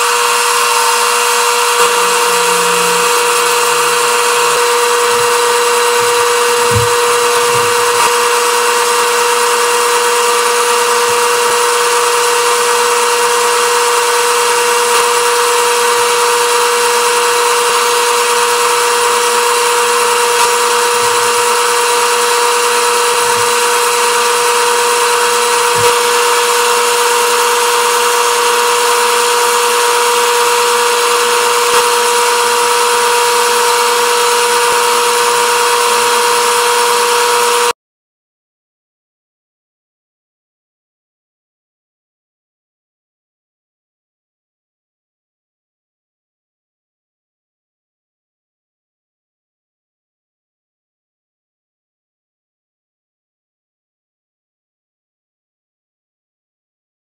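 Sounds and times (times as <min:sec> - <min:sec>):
chisel cutting spinning wood: 0:00.0 - 0:37.7
wood lathe whining: 0:00.0 - 0:37.7.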